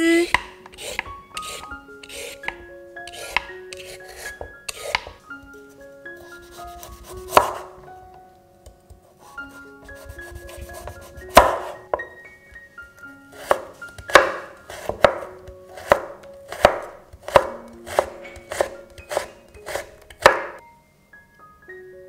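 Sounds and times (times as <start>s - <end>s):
soft background music: 0.0s - 22.0s
knife cutting on wooden board: 0.2s - 5.2s, 6.2s - 7.8s, 9.2s - 12.1s, 13.3s - 20.6s.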